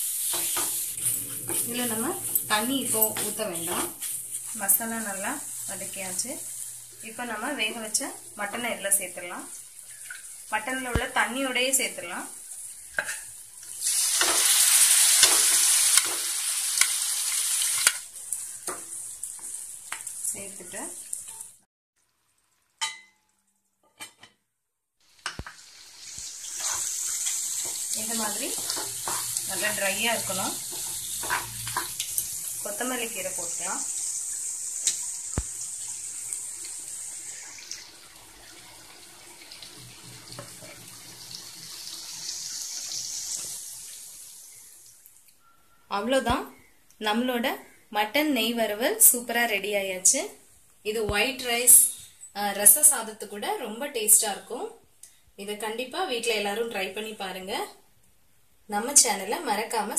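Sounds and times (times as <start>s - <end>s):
spices sizzling in oil: 0.0s - 23.1s, 25.0s - 45.2s.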